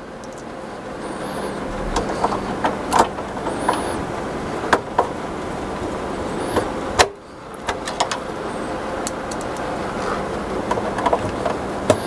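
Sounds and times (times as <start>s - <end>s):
steady background noise: 0.0s - 12.0s
screwdriver metal clicks: 9.0s - 9.6s.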